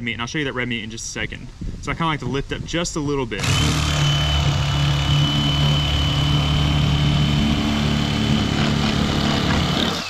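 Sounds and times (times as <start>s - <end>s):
electric fillet knife running: 3.4s - 10.0s.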